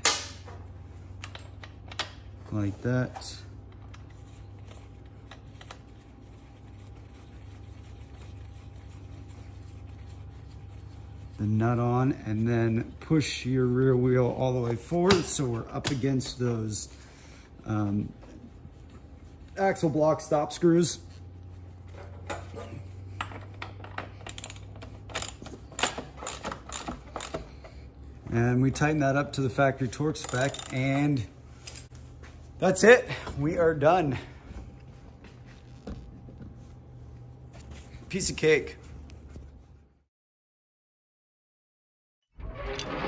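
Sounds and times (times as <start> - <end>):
steady low hum: 0.0 - 40.1
wrench clicking and clinking: 23.2 - 27.5, 30.2 - 31.1.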